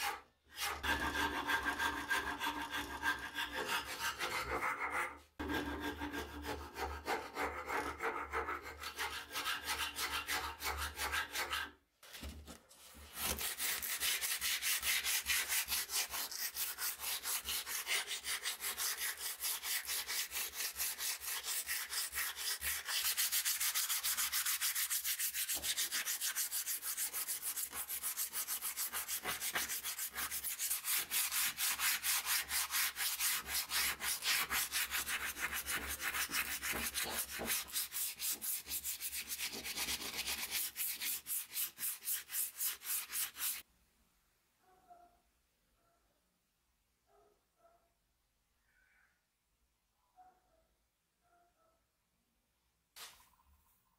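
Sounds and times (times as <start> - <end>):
sandpaper rubbing on wood: 13.2 - 43.6.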